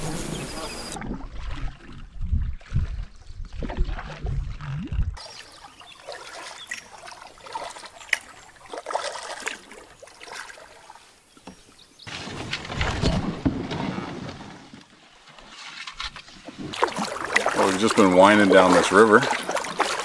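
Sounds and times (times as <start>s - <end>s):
water trickling off paddle: 5.2s - 12.0s, 15.0s - 20.0s
paddle strokes splashing: 5.2s - 13.4s, 14.4s - 20.0s.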